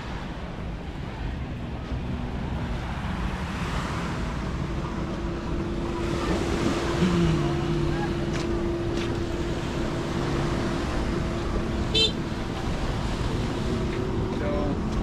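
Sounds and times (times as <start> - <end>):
low hum: 0.0 - 15.0
wind rumbling on microphone: 0.0 - 15.0.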